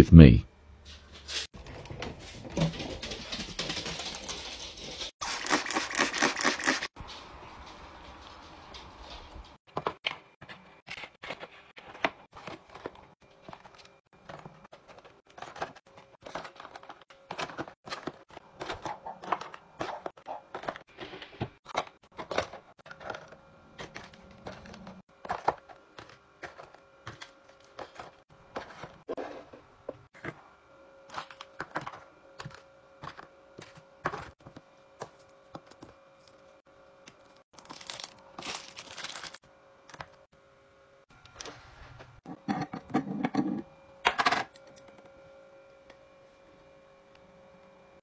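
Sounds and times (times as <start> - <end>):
plastic packs clacking together: 37.6 - 39.4.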